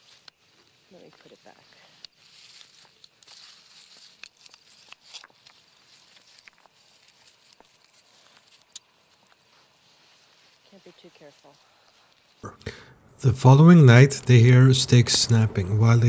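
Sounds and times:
stones clicking and scraping: 0.0s - 9.5s
hands rustling in dry leaves: 0.0s - 12.4s
steady hiss: 5.7s - 16.0s.

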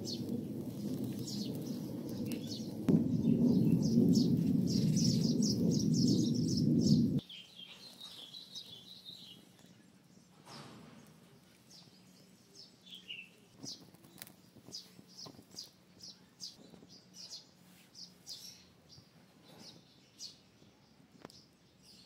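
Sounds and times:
faint bird chirps: 0.0s - 10.0s.

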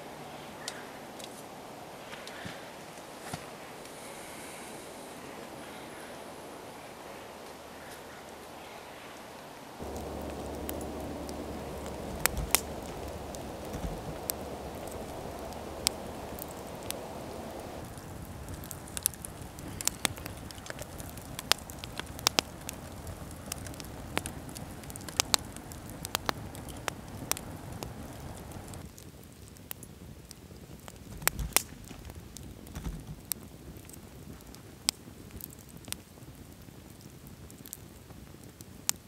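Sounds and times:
campfire crackling: 0.0s - 39.0s
sharp pops of fire: 9.8s - 36.6s.

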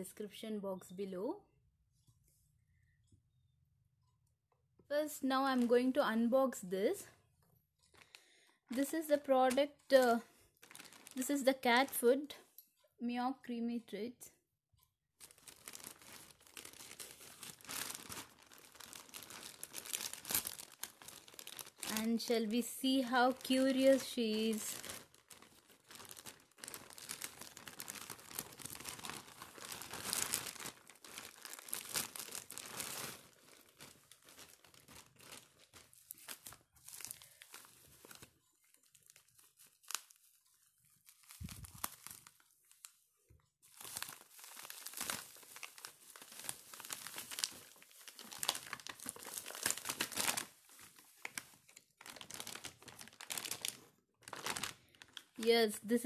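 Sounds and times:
plastic mailer crinkling and tearing: 10.6s - 12.0s, 15.2s - 43.0s, 43.6s - 55.6s.

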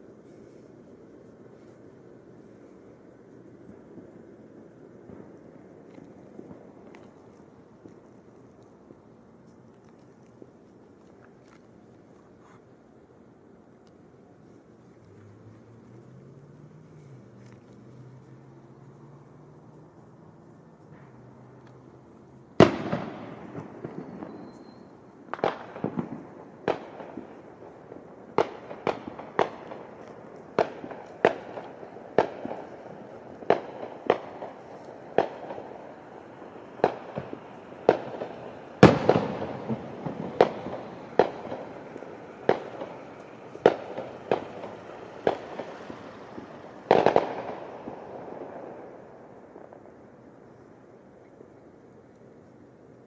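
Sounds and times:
fireworks bangs echoing: 22.6s - 50.1s.

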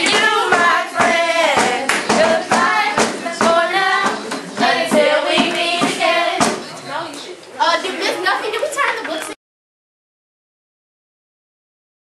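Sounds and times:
hand claps: 0.0s - 4.4s
voices singing together: 0.0s - 7.0s.

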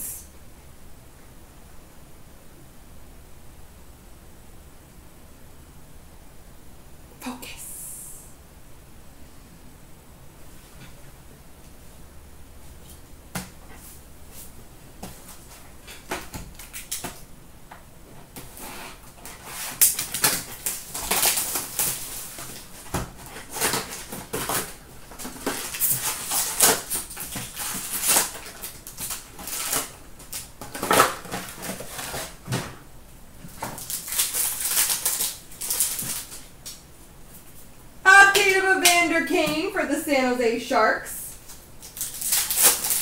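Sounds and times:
foil wrappers crinkling: 18.4s - 32.6s, 33.4s - 36.8s, 41.4s - 43.0s.

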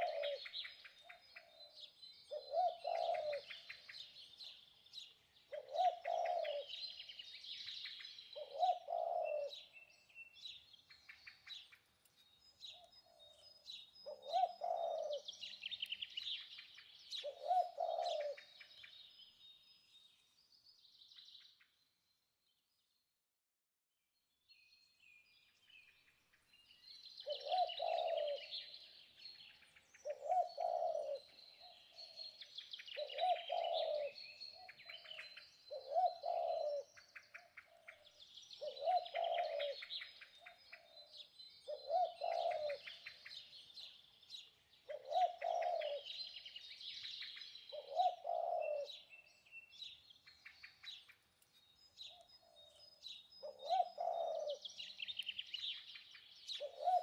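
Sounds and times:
dove cooing: 0.0s - 4.1s, 5.5s - 7.0s, 8.4s - 9.7s, 14.0s - 15.8s, 17.1s - 18.7s, 27.2s - 28.9s, 30.0s - 32.2s, 32.9s - 38.0s, 38.6s - 43.5s, 44.9s - 46.4s, 47.7s - 49.1s, 53.4s - 55.2s, 56.5s - 57.0s
small birds chirping: 0.0s - 23.1s, 24.4s - 57.0s.

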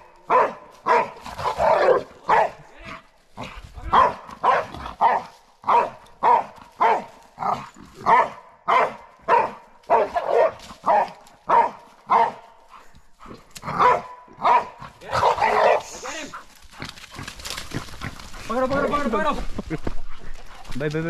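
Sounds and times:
dog barking: 0.2s - 2.6s, 3.8s - 12.8s, 13.6s - 16.4s.

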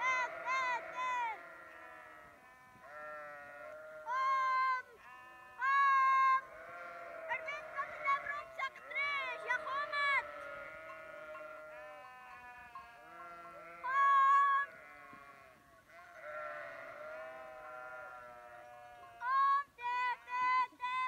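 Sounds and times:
sheep bleating: 0.0s - 21.0s.

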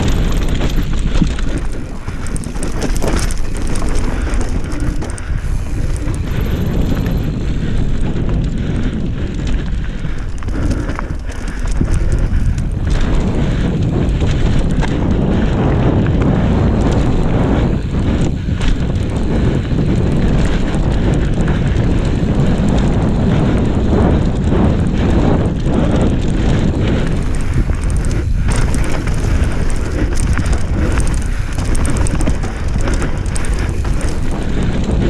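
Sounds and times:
tyres crunching over stones: 0.0s - 7.2s, 27.0s - 34.6s
bike rattling: 0.0s - 35.0s
wind buffeting microphone: 0.0s - 35.0s.

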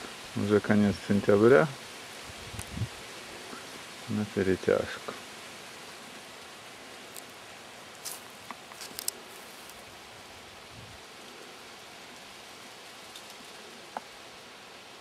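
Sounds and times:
steady outdoor hiss: 0.0s - 15.0s
dry crackles: 2.4s - 3.8s, 4.7s - 10.1s.

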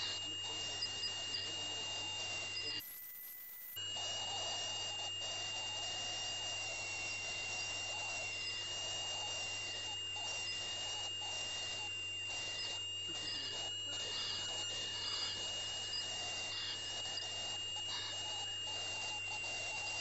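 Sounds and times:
ultrasonic dental scaler whine: 0.0s - 20.0s.

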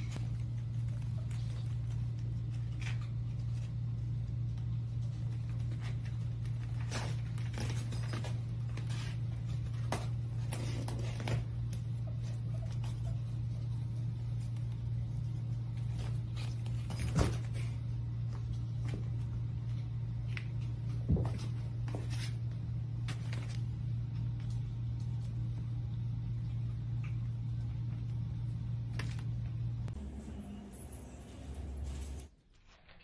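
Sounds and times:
steady low hum: 0.0s - 32.5s.

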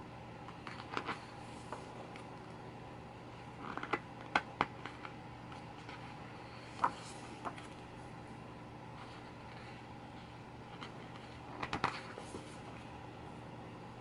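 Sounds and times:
paper pages rustling: 4.8s - 7.9s, 8.9s - 12.9s.

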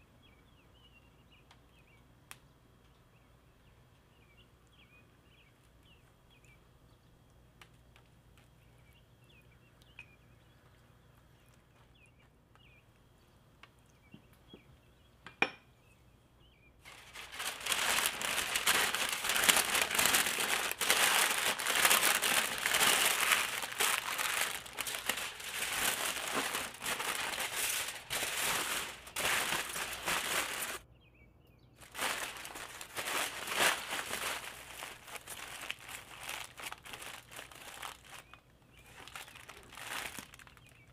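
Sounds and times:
aluminium foil crinkling: 16.8s - 30.8s, 31.8s - 40.9s
parchment paper crinkling: 16.8s - 30.8s, 31.8s - 40.9s.

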